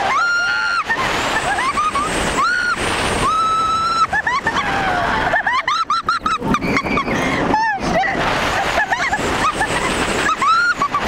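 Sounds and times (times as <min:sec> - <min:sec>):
riders screaming: 0:00.0 - 0:05.6
wind rush on microphone: 0:00.0 - 0:11.0.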